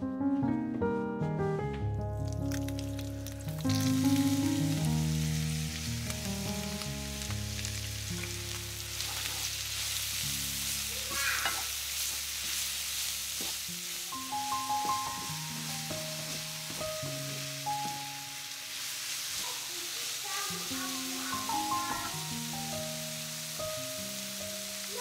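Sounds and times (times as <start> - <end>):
onions sizzling in a skillet: 2.2 - 25.0
wooden spatula stirring: 11.0 - 14.0.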